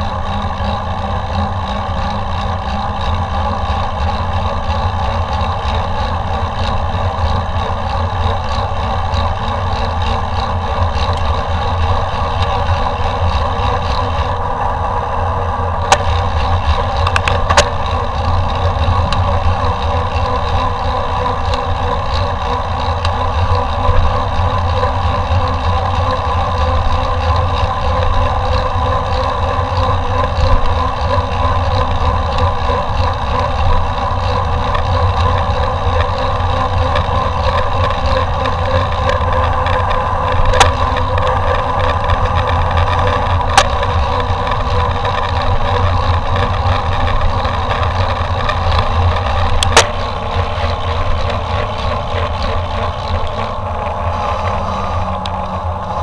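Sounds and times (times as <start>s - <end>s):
mountain bike rolling: 0.0s - 56.0s
sharp clicks: 45.0s - 53.6s.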